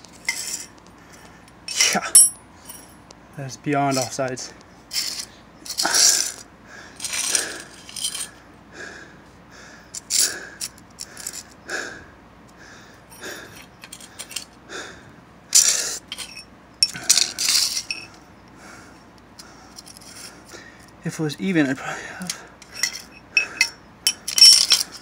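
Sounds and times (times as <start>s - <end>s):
metal rod clinking on concrete: 1.7s - 2.9s, 15.6s - 18.2s, 22.2s - 25.0s.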